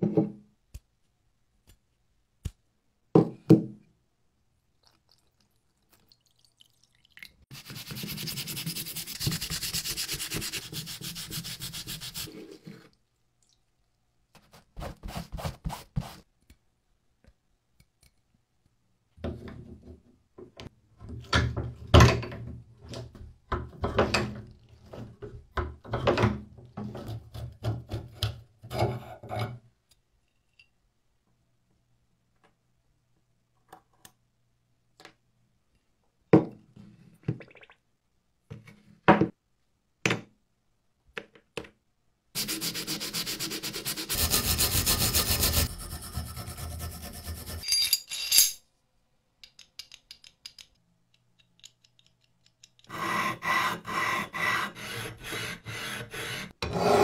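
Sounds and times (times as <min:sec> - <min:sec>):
scrubbing on metal wrench: 0:44.2 - 0:48.6.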